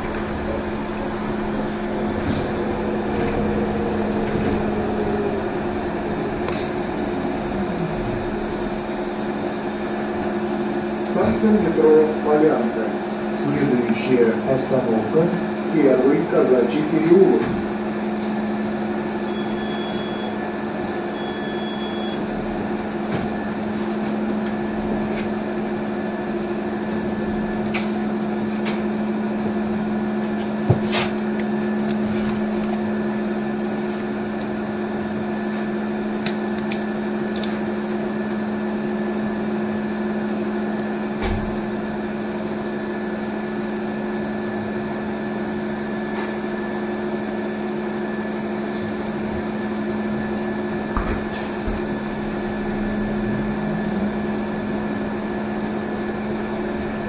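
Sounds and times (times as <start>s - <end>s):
road noise: 0.0s - 12.3s, 51.0s - 57.0s
high whine: 0.0s - 13.0s, 51.4s - 57.0s
trolleybus electrical hum: 0.0s - 57.0s.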